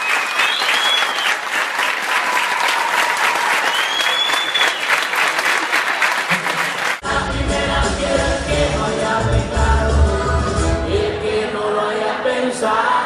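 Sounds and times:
whistle rising and falling: 0:00.0 - 0:01.4, 0:03.6 - 0:05.0
crowd clapping: 0:00.0 - 0:07.0
music: 0:07.0 - 0:12.7.

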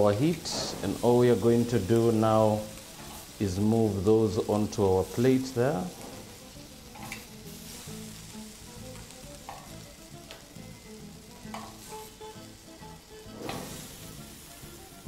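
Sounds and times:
zucchini sizzling on griddle pan: 0:00.0 - 0:15.0
metal tongs clicking: 0:07.0 - 0:07.3.

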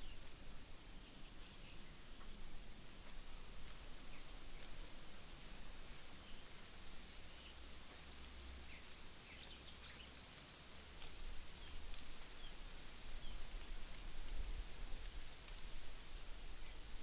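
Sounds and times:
small birds chirping: 0:00.0 - 0:17.0
steady outdoor hiss: 0:00.0 - 0:17.0
light ticks: 0:02.2 - 0:12.6, 0:15.0 - 0:15.9.

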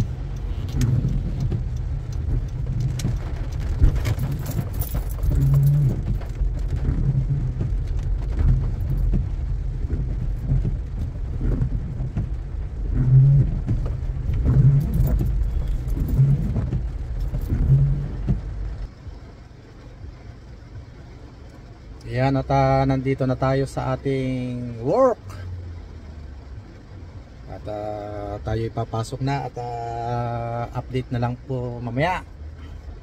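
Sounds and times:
car engine and road rumble: 0:00.0 - 0:33.0.

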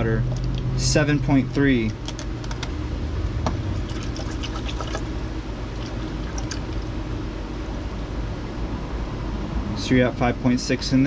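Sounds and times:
water running into bucket: 0:03.8 - 0:05.1, 0:05.7 - 0:06.9.

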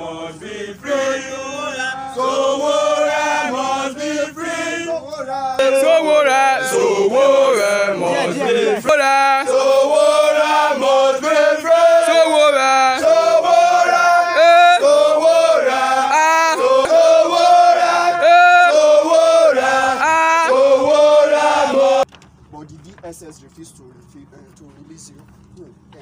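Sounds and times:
men singing chant-like song: 0:00.0 - 0:22.0.

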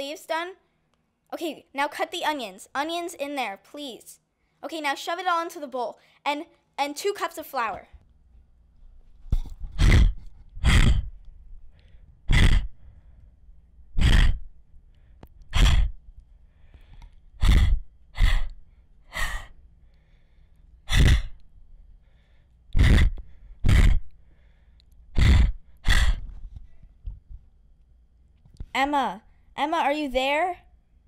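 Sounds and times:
girl breathing heavily: 0:09.4 - 0:26.8.

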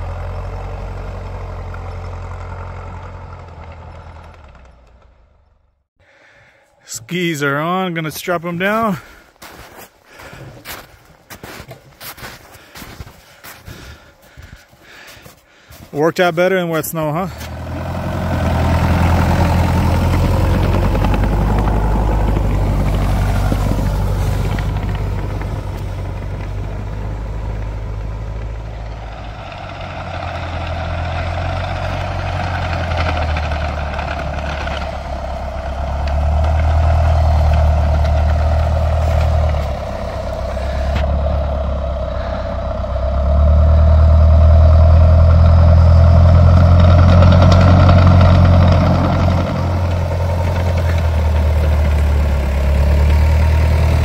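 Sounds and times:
snow vehicle engine humming: 0:00.0 - 0:54.0.

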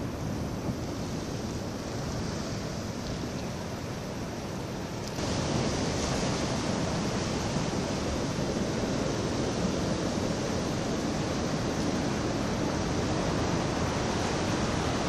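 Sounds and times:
wind: 0:00.0 - 0:15.0
surf breaking on rocks: 0:05.2 - 0:15.0.

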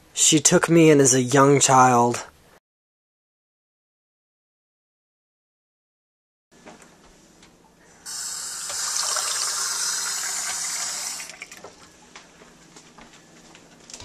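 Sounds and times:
faucet water running into sink: 0:08.1 - 0:11.8.

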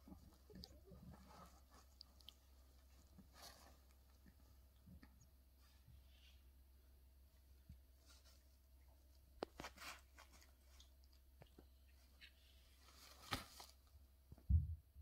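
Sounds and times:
puppy pad crinkles and scuffs: 0:00.1 - 0:04.2, 0:09.4 - 0:10.9, 0:12.4 - 0:13.9
dull low thump: 0:14.3 - 0:15.0.

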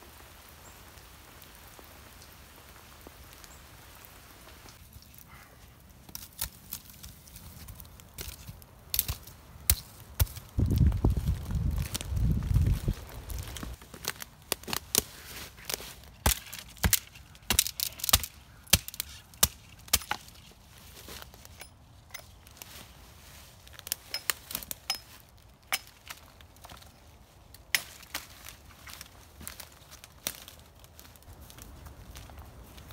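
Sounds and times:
hatchet chopping sapling: 0:08.2 - 0:10.6, 0:15.7 - 0:20.4, 0:23.9 - 0:26.3, 0:27.7 - 0:28.3.

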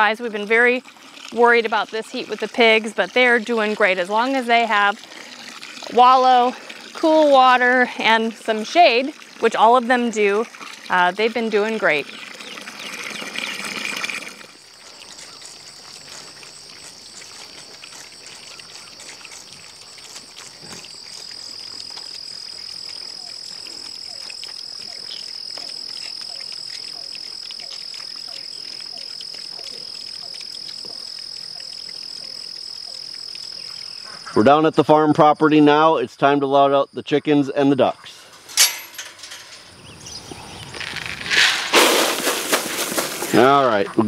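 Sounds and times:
water from hose splashing into pan: 0:00.0 - 0:33.8, 0:40.7 - 0:43.8
high-pitched insect drone: 0:14.5 - 0:37.8, 0:39.3 - 0:43.8.

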